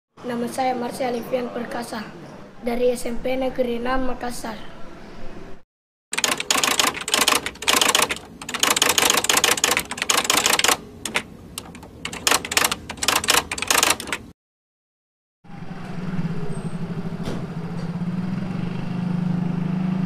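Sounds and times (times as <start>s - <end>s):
typewriter keys clacking: 6.2s - 14.3s.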